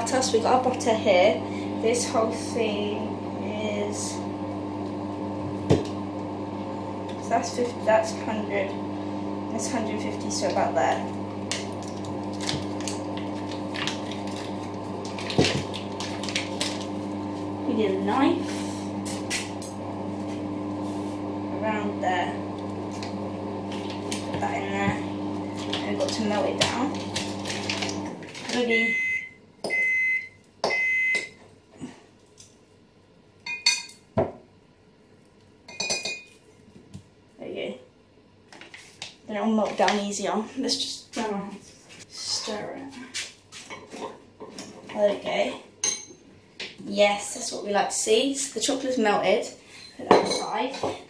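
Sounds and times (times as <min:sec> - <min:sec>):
paper wrapper crinkling: 0:11.8 - 0:17.0, 0:27.0 - 0:28.6
microwave oven beeping: 0:27.3 - 0:31.4.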